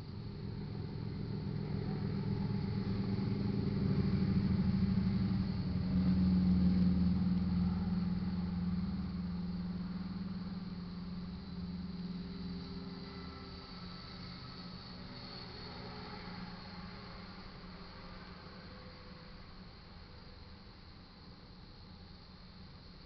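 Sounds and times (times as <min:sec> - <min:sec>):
vehicle engine running: 0:00.0 - 0:17.7.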